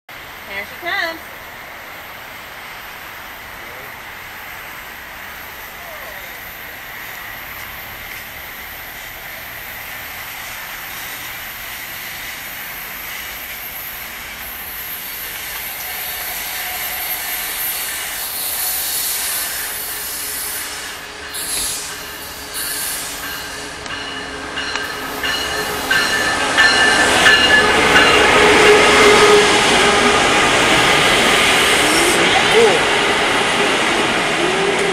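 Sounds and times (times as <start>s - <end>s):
diesel train pulling into station: 0.1s - 34.9s
train wheels squealing: 11.0s - 29.7s.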